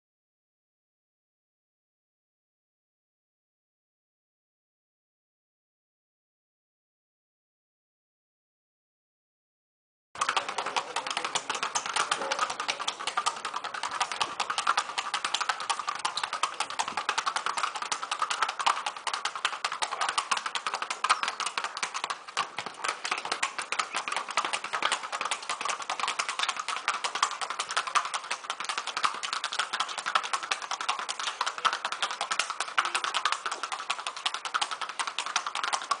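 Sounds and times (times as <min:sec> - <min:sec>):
horse hooves clicking on tiles: 0:10.2 - 0:36.0.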